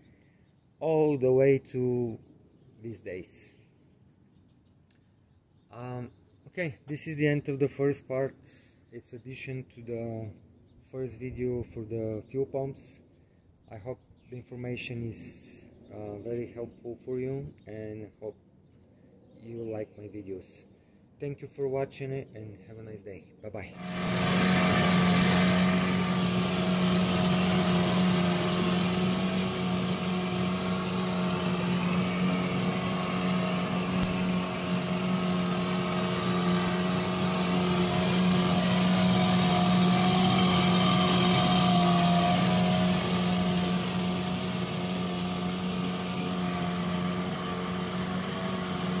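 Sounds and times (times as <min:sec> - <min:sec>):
outboard motor running: 0:23.7 - 0:49.0.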